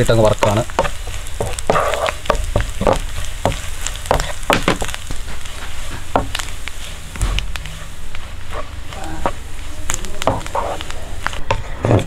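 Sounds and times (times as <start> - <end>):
frying sizzle: 0.0 - 12.0
wooden spatula scraping pan: 0.0 - 12.0.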